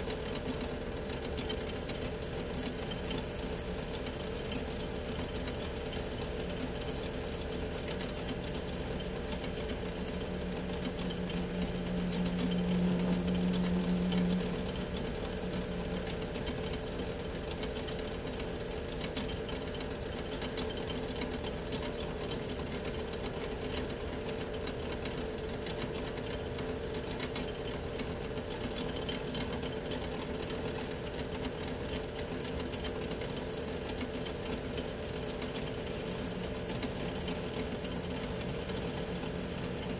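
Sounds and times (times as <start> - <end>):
low tone: 11.8 - 15.2.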